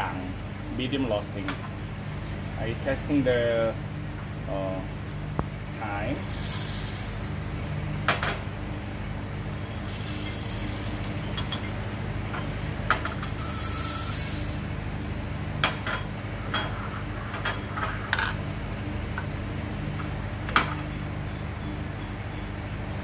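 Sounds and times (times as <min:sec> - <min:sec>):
steady low hum: 0:00.0 - 0:23.0
coffee beans pouring into grinder: 0:06.2 - 0:07.8, 0:09.6 - 0:11.7, 0:13.2 - 0:14.8
glasses clinking on stone counter: 0:09.7 - 0:11.8.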